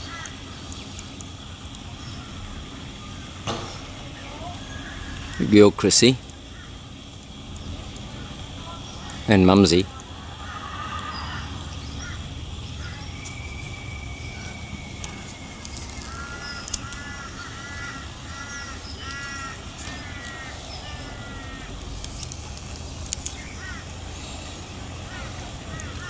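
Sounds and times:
bird calling: 0.0 - 26.0
steady background noise: 0.0 - 26.0
sharp clicks: 7.0 - 8.2, 9.9 - 11.3, 13.2 - 26.0.

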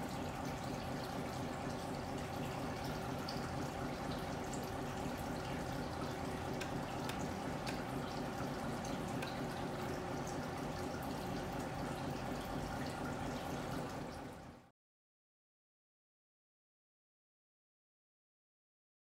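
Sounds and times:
faint ticking: 5.2 - 11.0.

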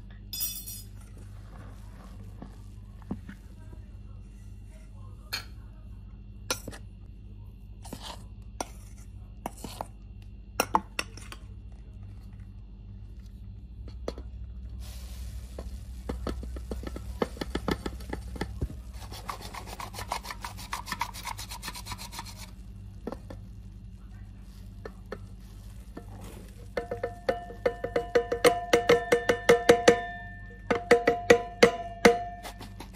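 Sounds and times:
flour sifter rasping and clicking: 7.8 - 10.3, 11.0 - 29.0, 32.2 - 32.9.

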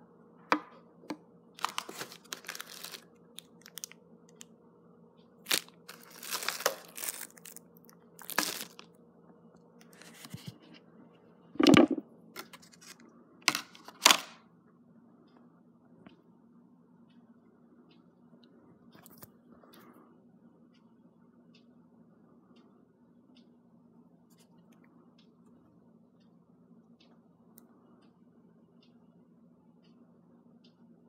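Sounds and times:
plastic packaging crinkling: 1.6 - 3.9, 5.5 - 7.6, 8.2 - 8.8.

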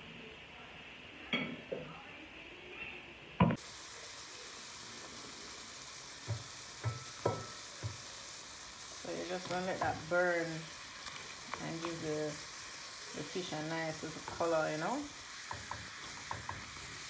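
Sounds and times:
fish sizzling in frying pan: 3.4 - 17.0.

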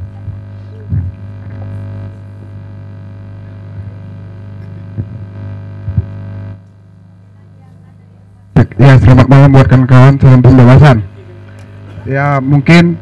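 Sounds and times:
microphone handling thumps: 0.0 - 2.7, 3.4 - 6.8
electrical mains hum: 0.0 - 13.0.

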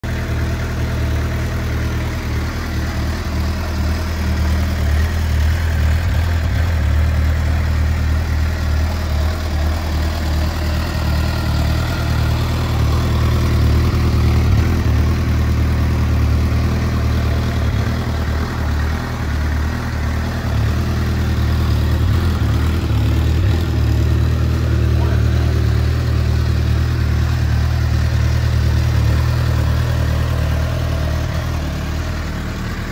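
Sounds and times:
motorcycle engine idling: 0.0 - 32.9.

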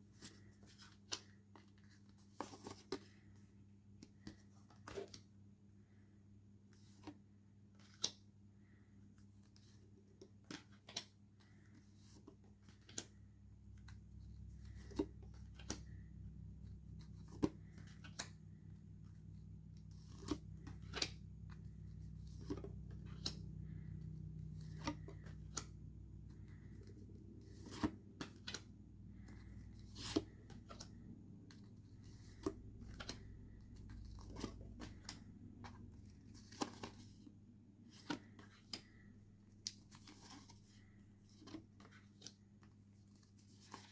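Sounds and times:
low steady hum: 0.0 - 43.9
postcards leafed through by hand: 9.5 - 43.9.

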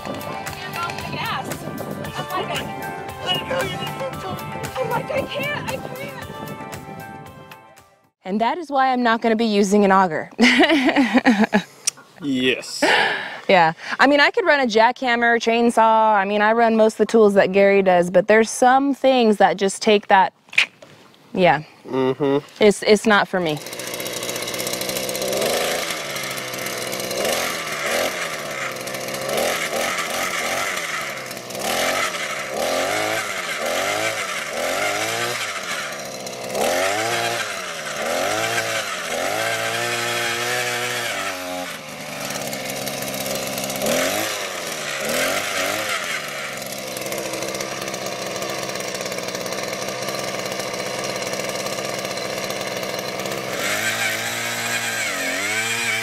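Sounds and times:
small gas engine revving: 0.1 - 6.6, 10.4 - 11.9, 12.8 - 14.4, 21.9 - 56.0.

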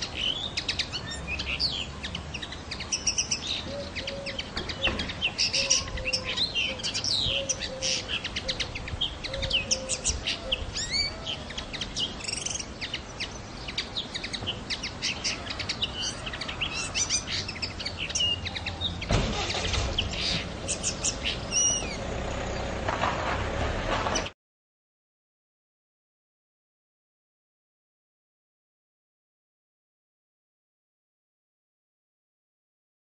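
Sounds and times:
songbird twittering: 0.0 - 22.6.

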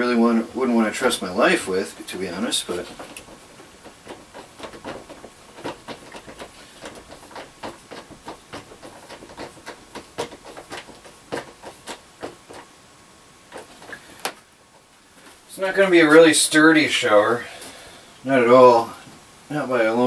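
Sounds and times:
hand tool tapping thin plastic: 2.3 - 12.7, 13.5 - 14.9.

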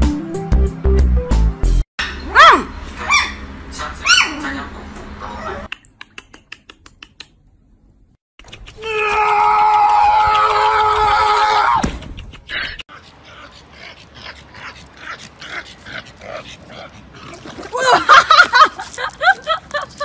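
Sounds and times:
puppy yelping: 2.0 - 3.4, 4.0 - 4.4.

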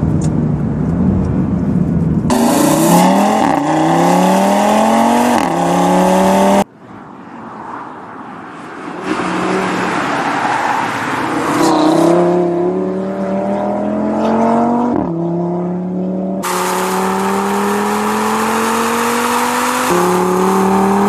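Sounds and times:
car engine accelerating hard: 2.3 - 6.7, 11.2 - 21.0.

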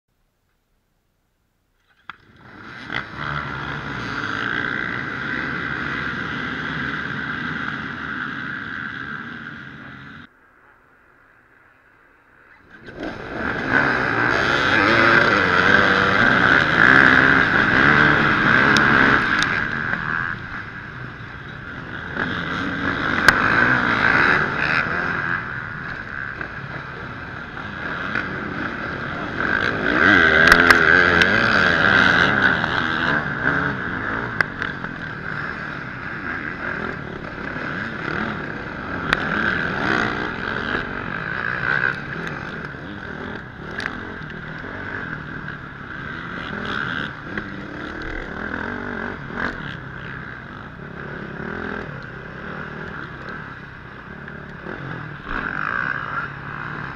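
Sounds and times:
motorcycle engines revving: 1.8 - 56.9.

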